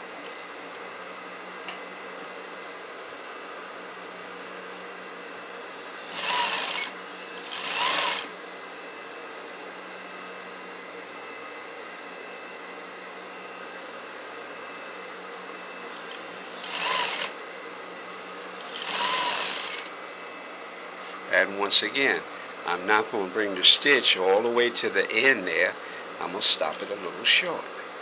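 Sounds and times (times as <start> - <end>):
sewing machine stitching: 6.0 - 8.3, 16.0 - 17.4, 18.6 - 19.9
background hum: 21.0 - 28.0.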